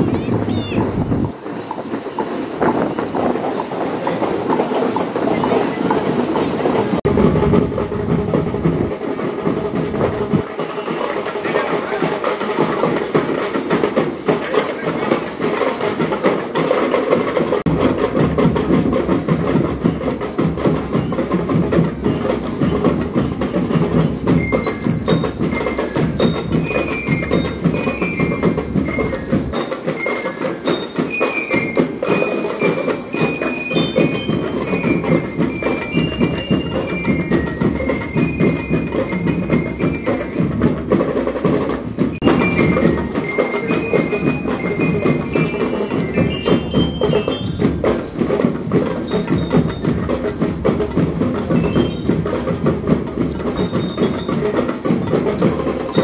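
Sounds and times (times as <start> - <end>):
marching band drumming: 0.0 - 56.0
bell lyres playing melody: 9.0 - 56.0.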